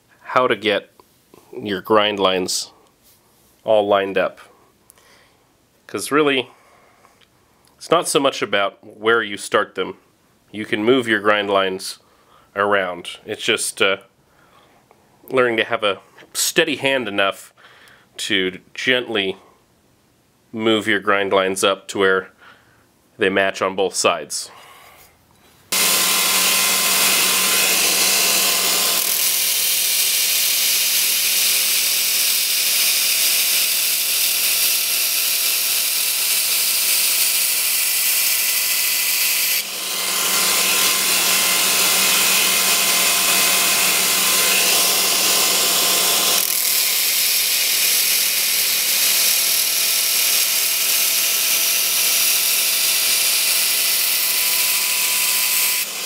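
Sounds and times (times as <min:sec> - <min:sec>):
machine hum: 0:25.7 - 0:29.9, 0:39.6 - 0:47.3
belt grinder grinding steel: 0:25.7 - 0:56.0.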